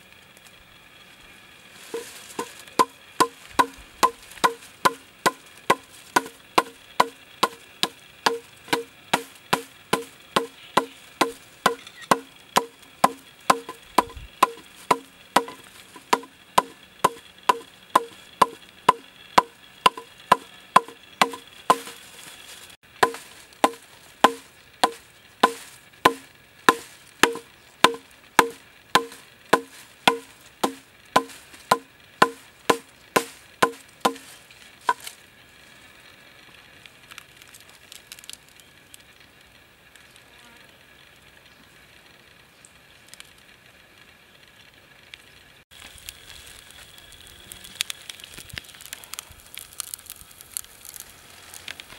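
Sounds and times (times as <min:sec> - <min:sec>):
hammer striking bamboo: 0:01.9 - 0:22.0, 0:23.0 - 0:35.1.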